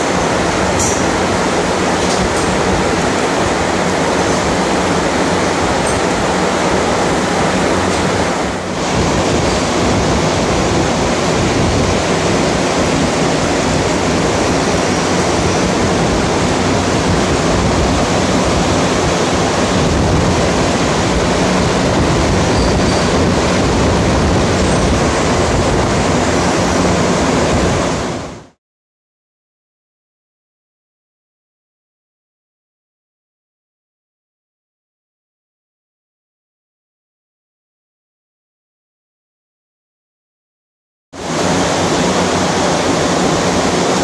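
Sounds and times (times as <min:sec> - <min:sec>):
cooling system rushing and humming: 0:00.0 - 0:28.6, 0:41.2 - 0:44.0.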